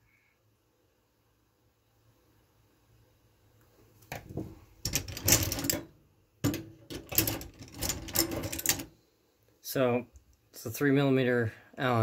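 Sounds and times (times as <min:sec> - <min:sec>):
hand tools clattering: 0:04.8 - 0:08.9.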